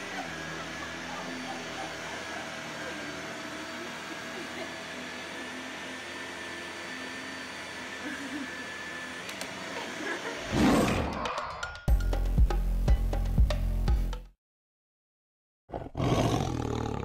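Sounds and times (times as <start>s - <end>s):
vacuum cleaner running: 0.0s - 10.8s.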